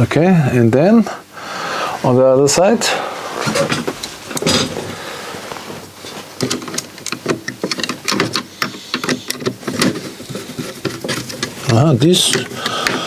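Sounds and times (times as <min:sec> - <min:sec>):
screwdriver clicking and scraping metal: 0:06.4 - 0:13.0.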